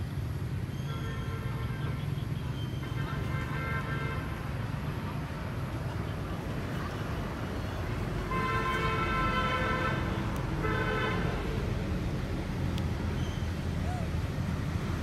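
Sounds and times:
road traffic rumble: 0.0s - 15.0s
vehicle horn blasts: 8.3s - 11.4s.

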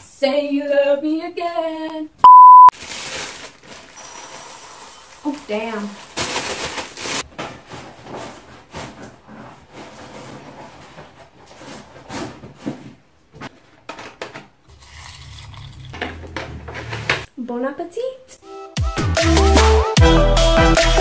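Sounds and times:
cereal pouring into a bowl: 2.8s - 7.0s.

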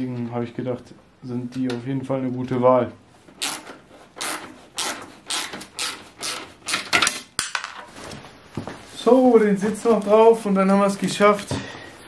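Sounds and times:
hand ratchet clicking: 3.4s - 7.4s.

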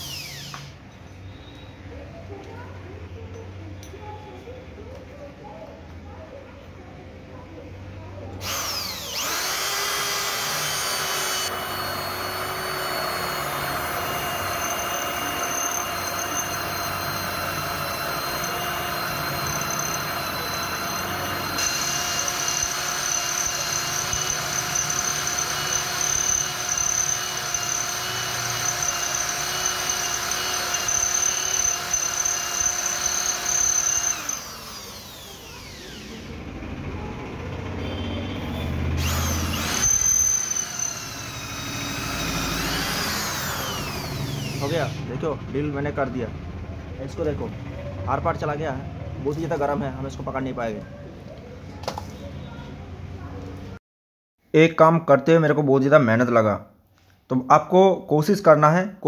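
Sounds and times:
electric drill boring through iron: 0.0s - 0.8s, 8.4s - 36.5s, 38.9s - 45.0s.

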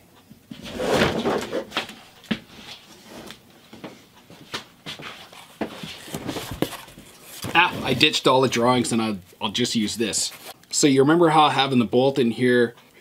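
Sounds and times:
whiteboard scraping: 0.5s - 1.9s, 5.0s - 9.0s, 10.1s - 10.6s.

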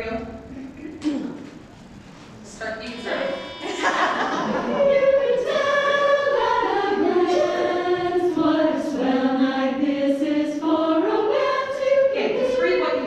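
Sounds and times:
chorus singing held notes: 2.9s - 13.0s.

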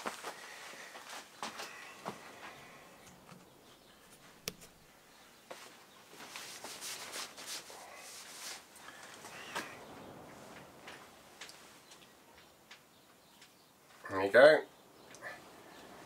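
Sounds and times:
light scraping rustles: 0.0s - 12.1s
sharp click: 4.4s - 4.8s.

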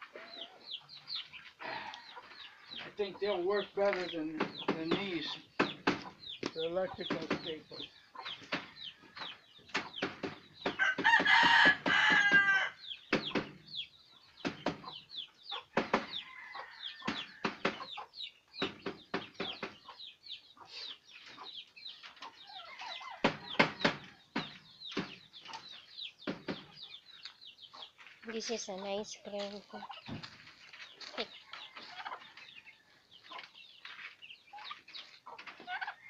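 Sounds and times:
rooster crowing: 10.8s - 12.8s.

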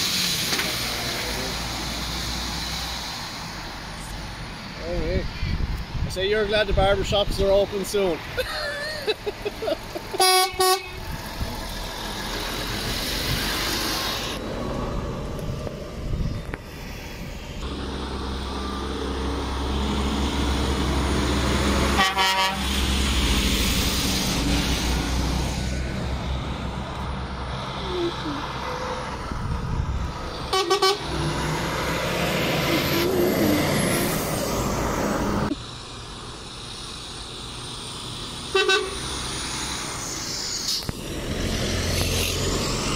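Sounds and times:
lorry diesel engines passing: 0.0s - 42.9s
truck horn toots: 10.2s - 11.0s, 21.9s - 22.8s, 30.5s - 31.1s, 38.5s - 39.0s.

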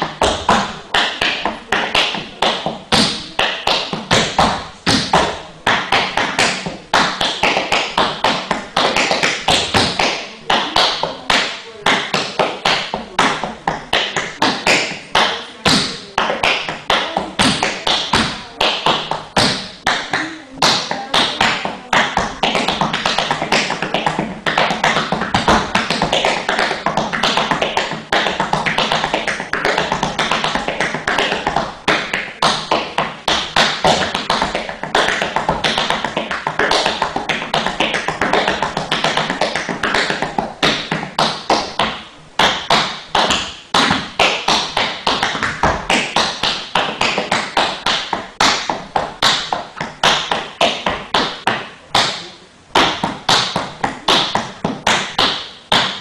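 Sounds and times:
tap shoes striking floor: 11.9s - 52.2s, 52.8s - 56.0s.

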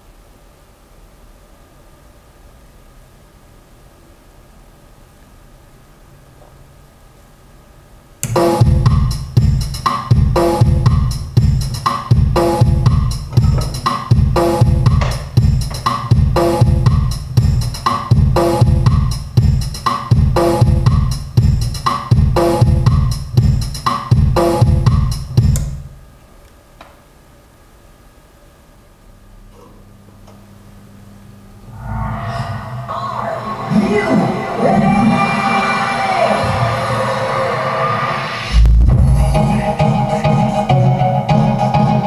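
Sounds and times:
drum-heavy music: 8.2s - 25.9s, 33.4s - 42.0s.

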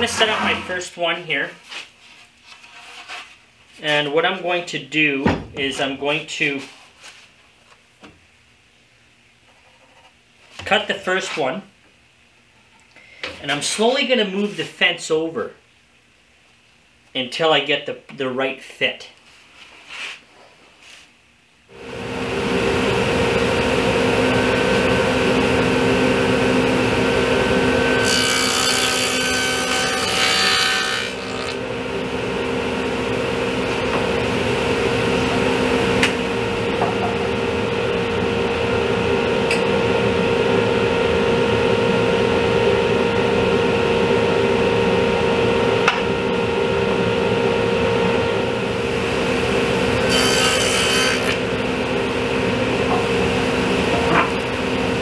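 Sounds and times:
table saw motor whine: 21.7s - 55.0s
saw cutting wood: 27.9s - 31.6s, 50.0s - 51.4s.

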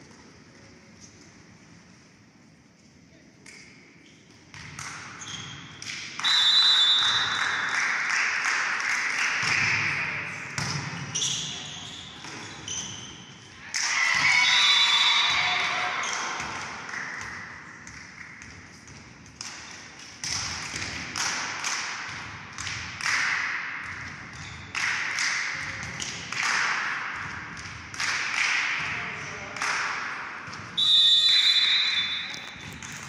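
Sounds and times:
referee's whistle blasts: 6.2s - 7.4s, 30.8s - 32.6s.

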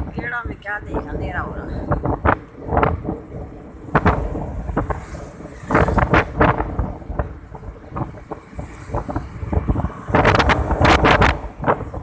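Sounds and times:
road and engine rumble: 0.0s - 12.0s
wind buffeting microphone: 0.0s - 12.0s.

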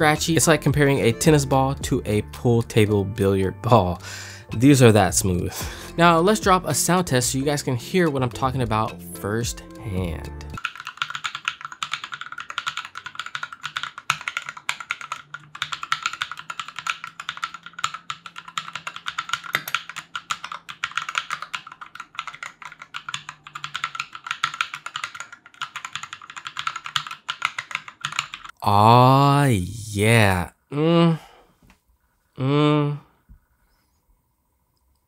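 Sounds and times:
fast typing on mechanical keyboard: 10.6s - 28.5s.

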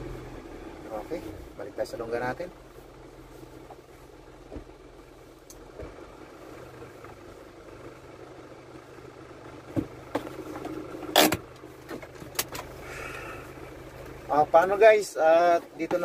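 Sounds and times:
diesel truck engine running: 0.0s - 16.0s.

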